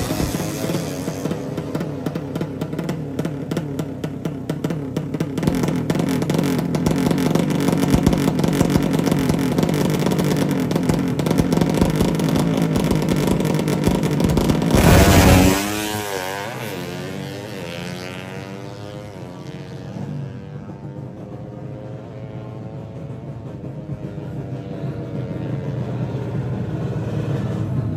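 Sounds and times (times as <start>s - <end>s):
drag bike engine revving: 0.0s - 20.8s.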